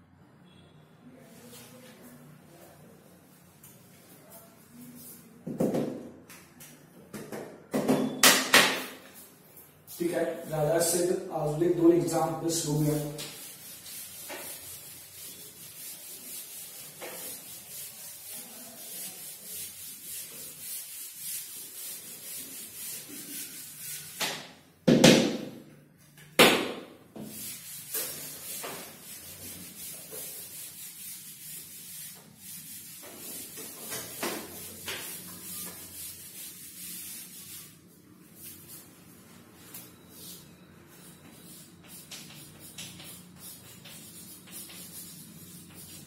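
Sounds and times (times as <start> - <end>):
knocks on chalkboard: 5.4 - 6.1, 24.2 - 25.6
duster wiping chalkboard: 8.8 - 24.5, 27.1 - 46.0.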